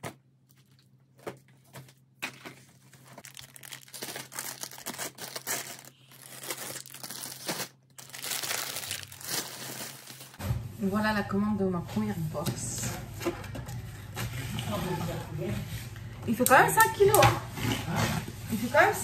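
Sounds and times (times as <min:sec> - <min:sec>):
packaging crinkling and rustling: 0:00.5 - 0:10.4
packaging tearing: 0:03.2 - 0:10.4.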